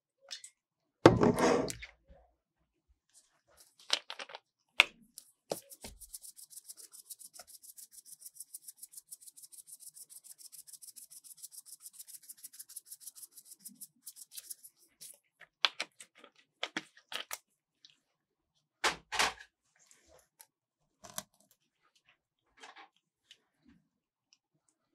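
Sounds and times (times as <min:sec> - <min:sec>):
sprinkles rattling in shaker bottle: 0:05.5 - 0:15.2.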